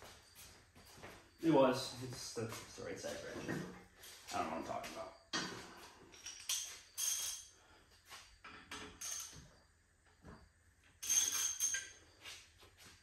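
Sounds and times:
metal tools clinking and rattling: 6.1s - 7.5s, 8.4s - 9.5s, 11.0s - 12.0s.

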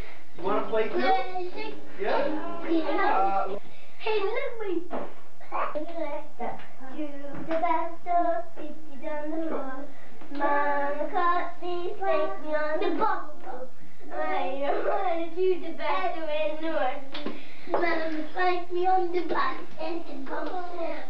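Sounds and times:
young children singing: 5.5s - 21.0s.

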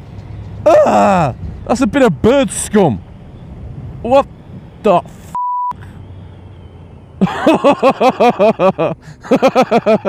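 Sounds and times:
motorcycle engine humming: 0.0s - 9.3s
censor bleep: 5.3s - 5.8s
man laughing hard: 7.2s - 10.0s.

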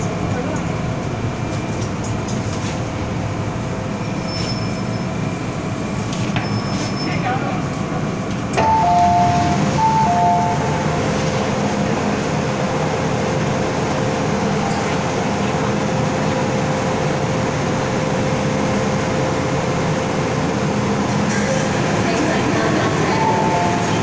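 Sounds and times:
train humming: 0.0s - 24.0s
two-note door chime: 8.6s - 10.9s.

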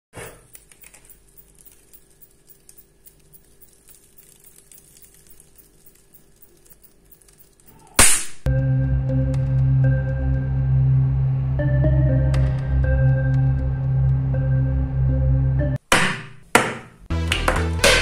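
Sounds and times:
faint hum: 0.4s - 15.7s
burning paper crackling: 3.4s - 7.7s
music: 8.5s - 15.8s, 17.1s - 18.0s.

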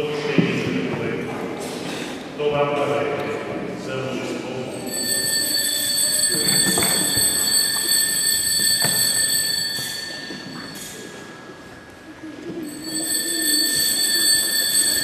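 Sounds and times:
high-pitched altar bells ringing: 4.7s - 11.6s, 12.5s - 15.0s.

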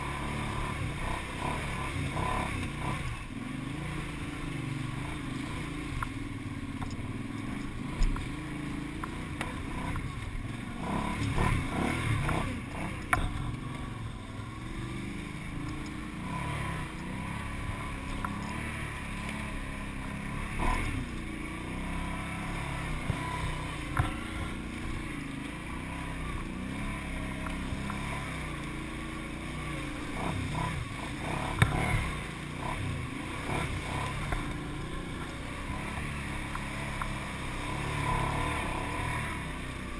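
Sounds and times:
atv engine revving: 0.0s - 39.9s
sharp knocks over bumps: 23.0s - 24.6s, 31.4s - 32.2s.

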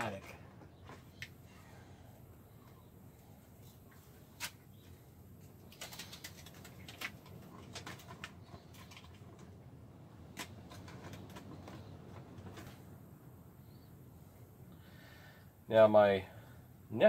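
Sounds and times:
foil tape crinkling: 5.4s - 9.5s.

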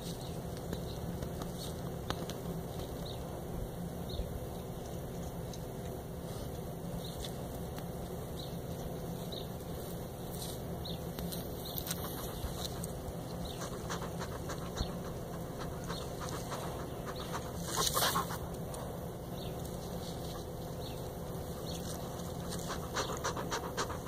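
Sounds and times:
porcupine rustling on gravel: 0.0s - 3.5s, 4.4s - 24.0s
low background rumble: 10.8s - 24.0s.

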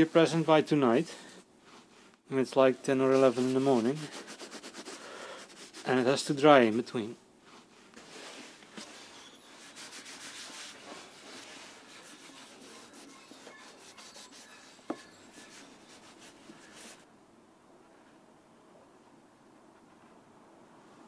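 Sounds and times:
cloth wiping wood: 2.8s - 6.0s, 7.4s - 17.0s.

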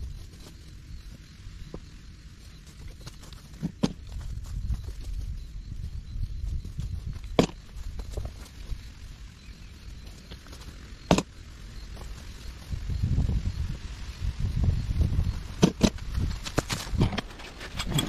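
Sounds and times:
footsteps crunching through dry leaves: 2.4s - 11.0s, 16.0s - 17.7s.

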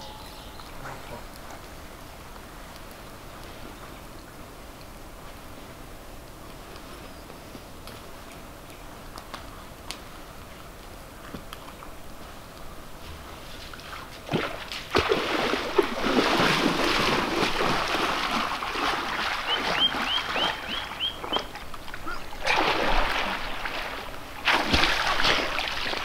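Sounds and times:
high chirps: 0.0s - 1.2s
water splashing: 13.2s - 26.0s.

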